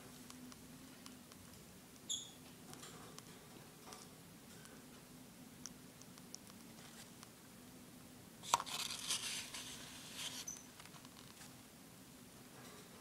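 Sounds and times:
baby bird peeping: 2.1s - 2.4s
rustling and scratching: 8.4s - 11.6s.

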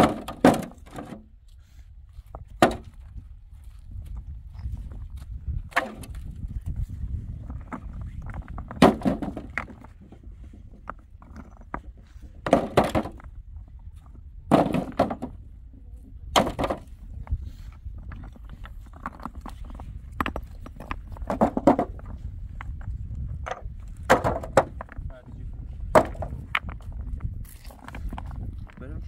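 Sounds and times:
heavy knocks: 8.6s - 9.8s, 14.5s - 15.4s, 20.2s - 22.1s, 23.4s - 25.0s, 25.8s - 26.6s.

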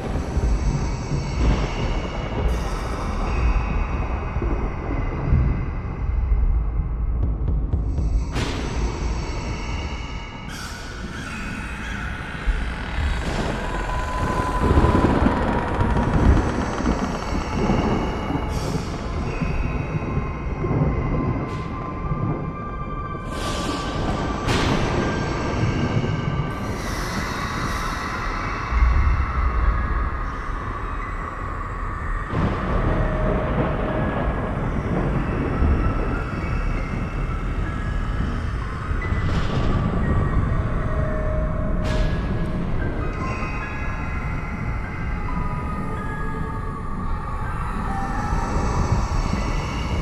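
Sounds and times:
ambient drone of held tones: 8.3s - 50.0s
thunder rumbling: 12.4s - 26.7s, 32.1s - 43.2s.

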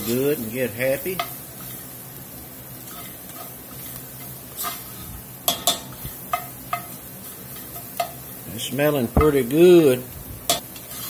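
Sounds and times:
vegetables sizzling in oil: 0.0s - 11.0s
metal spoon scraping pot: 10.5s - 11.0s.

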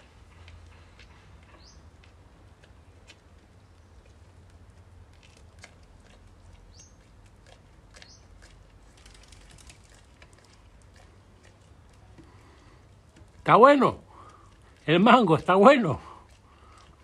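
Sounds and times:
goat chewing: 0.0s - 17.0s.

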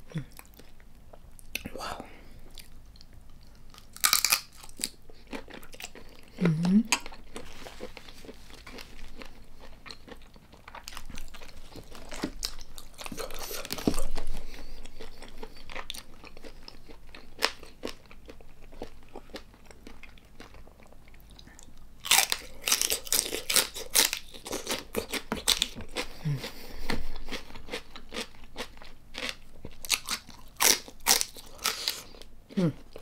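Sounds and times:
celery crunching: 3.7s - 18.0s, 22.0s - 33.0s.

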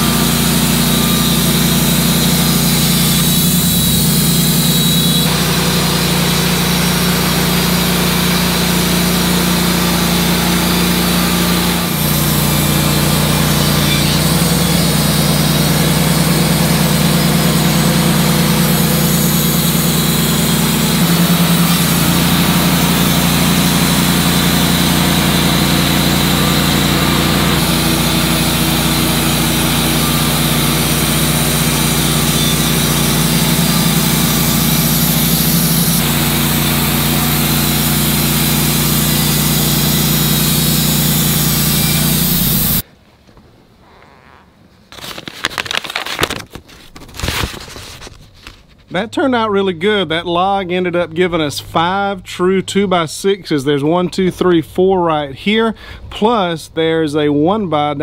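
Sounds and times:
band sawmill sawing log: 0.0s - 42.8s.

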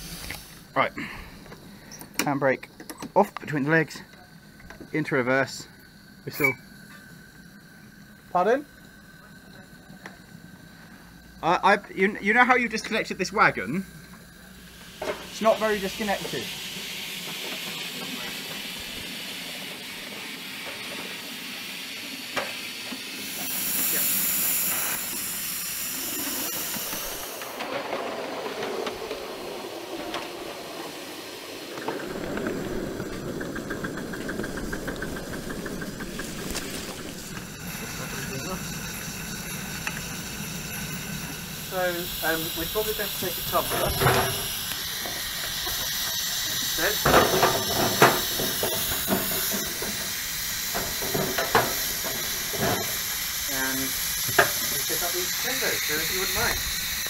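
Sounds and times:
steam hissing: 0.0s - 57.0s
train running with low rumble: 23.2s - 57.0s.

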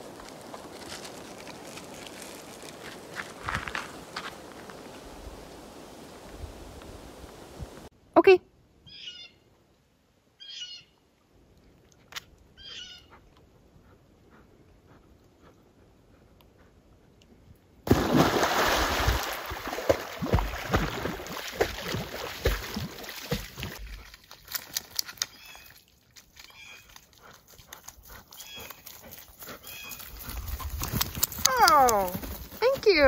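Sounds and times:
water splashing from swimming dog: 17.9s - 27.9s.

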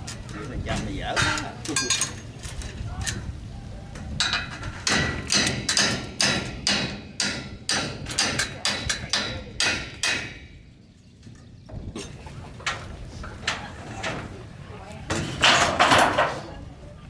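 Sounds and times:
hammer on metal roof: 4.2s - 10.6s.

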